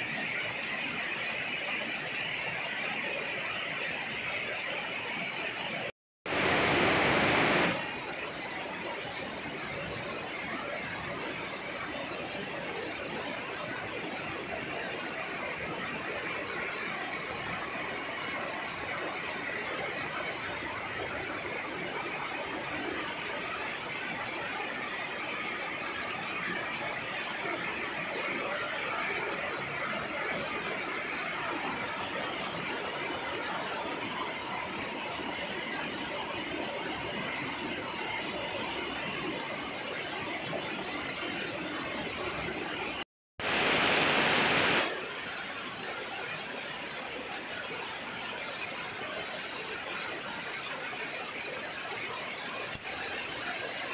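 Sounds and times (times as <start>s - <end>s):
heavy rain on plants: 0.1s - 53.9s
rain on foliage: 6.3s - 8.0s, 43.4s - 53.9s.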